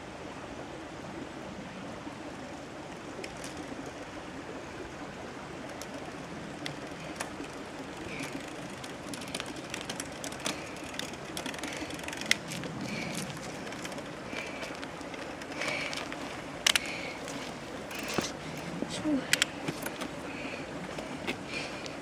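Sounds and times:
bicycle ticking and rattling: 3.2 - 4.2, 5.6 - 22.0
steady rushing background: 5.6 - 22.0
bicycle tyres crunching on grit: 5.7 - 18.8.

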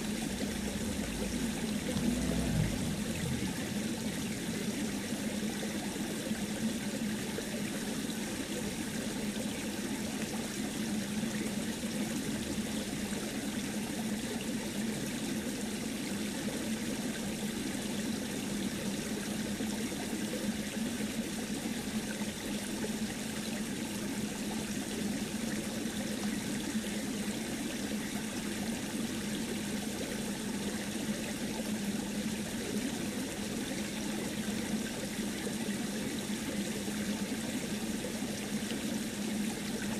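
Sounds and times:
water trickling in a stream: 0.0 - 39.9.

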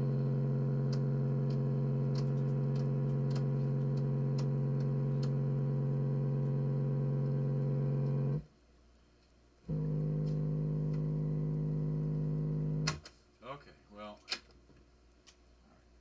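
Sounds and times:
speaker electrical buzz: 0.0 - 8.5, 9.6 - 13.0.

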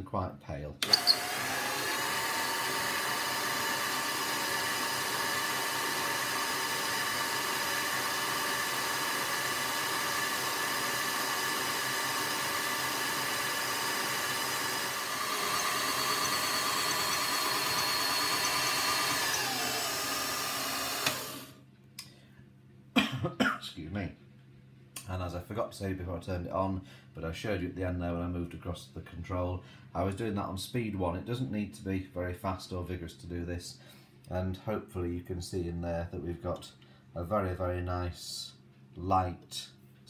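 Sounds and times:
stand mixer motor whining: 0.8 - 21.6.

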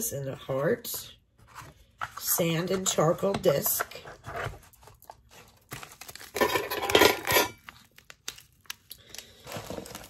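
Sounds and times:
small objects knocking and clinking: 6.2 - 7.8.

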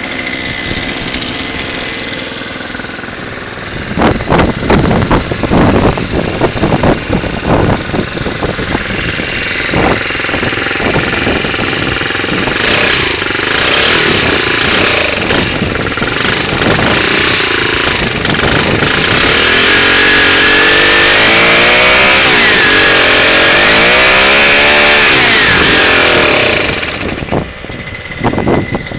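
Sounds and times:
small engine idling and revving: 0.0 - 28.9.

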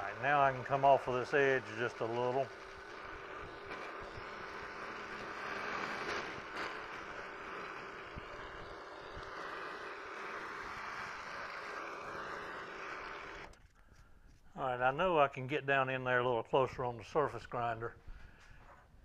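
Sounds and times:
metal cutting hiss: 0.0 - 13.5
milling machine hum: 0.0 - 13.6.

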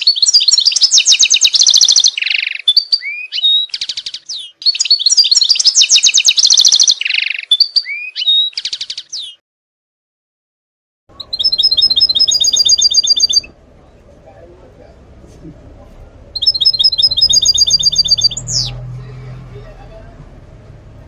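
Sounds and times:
finch song with twittering trills: 0.0 - 9.4, 11.1 - 13.6, 16.4 - 19.3.

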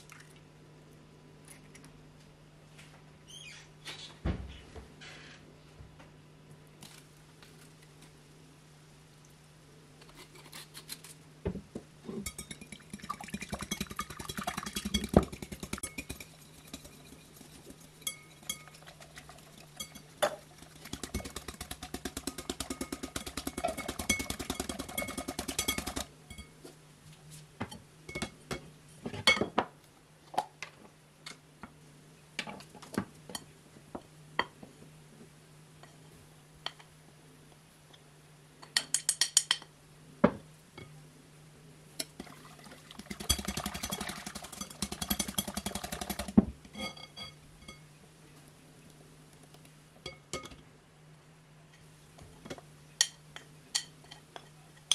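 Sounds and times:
sieve tapping: 12.2 - 17.2
whisk clinking against glass bowl: 12.2 - 26.5, 43.1 - 46.2
clinks and taps on glass bowl: 50.0 - 50.6.

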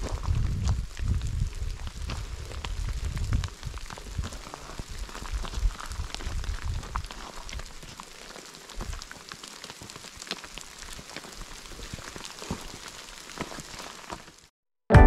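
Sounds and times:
rain hiss: 0.0 - 14.4
raindrops ticking: 5.0 - 14.1.

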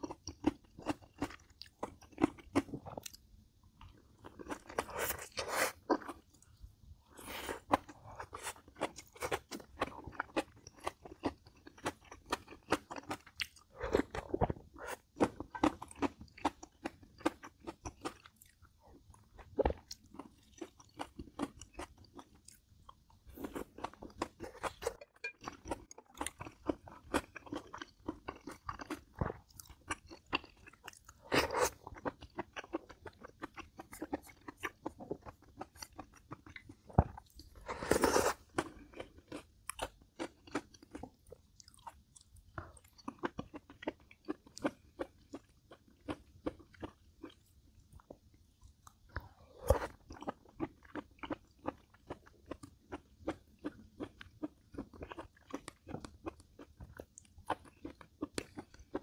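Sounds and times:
person chewing and crunching food: 0.0 - 59.0.

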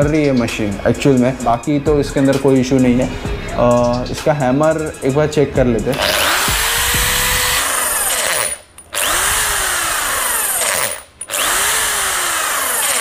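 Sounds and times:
hammer drill whining: 5.9 - 13.0.

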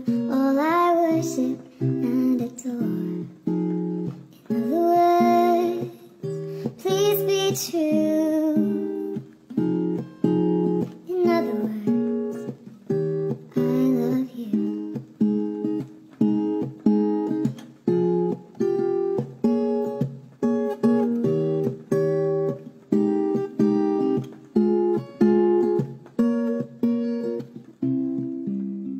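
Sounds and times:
strummed acoustic guitar: 0.0 - 28.9.

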